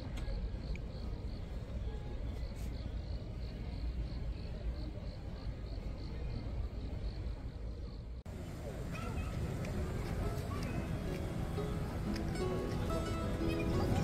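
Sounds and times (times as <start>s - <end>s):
cricket chirping: 0.1s - 8.2s.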